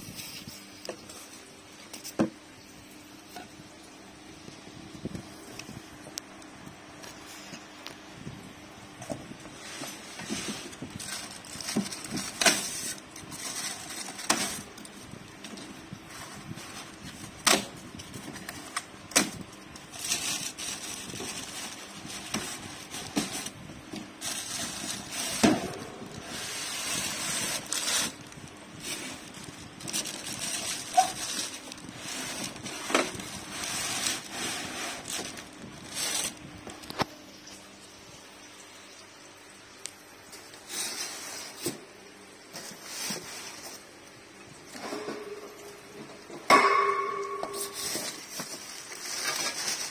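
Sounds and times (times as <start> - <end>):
plastic wrap rustling: 9.0 - 37.8, 38.9 - 49.9
foam blocks scraping cardboard: 30.8 - 35.2.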